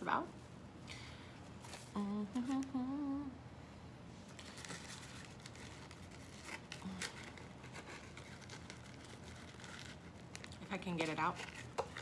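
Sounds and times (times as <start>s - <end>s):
paper packaging crinkling: 4.2s - 12.0s.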